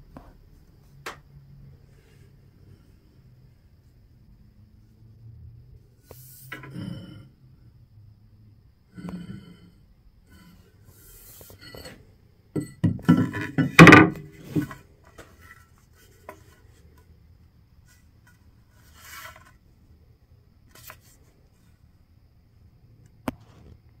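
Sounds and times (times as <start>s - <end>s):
axe handling knocks and rubbing: 11.1s - 12.0s, 12.6s - 16.6s.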